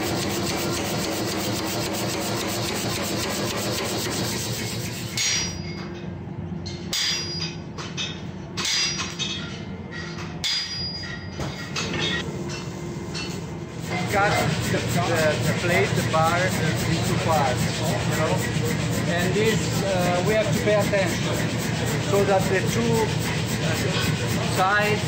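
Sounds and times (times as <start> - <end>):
power hammer pounding steel: 0.0 - 5.8, 13.9 - 25.0
steady hum: 11.7 - 25.0.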